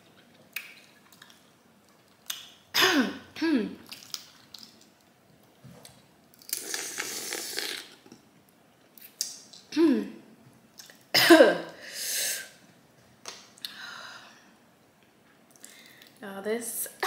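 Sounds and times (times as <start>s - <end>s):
mouth slurping and sucking: 6.5s - 8.0s.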